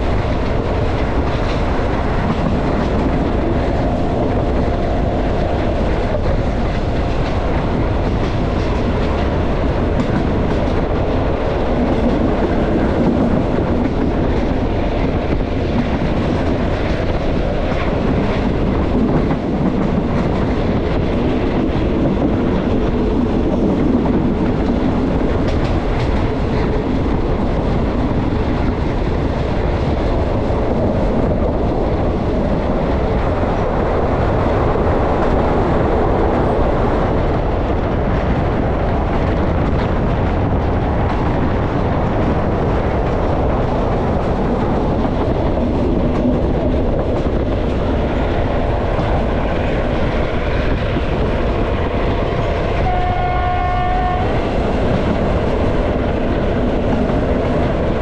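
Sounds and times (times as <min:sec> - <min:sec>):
train rumbling on rails: 0:00.0 - 0:58.0
train horn: 0:52.8 - 0:54.4.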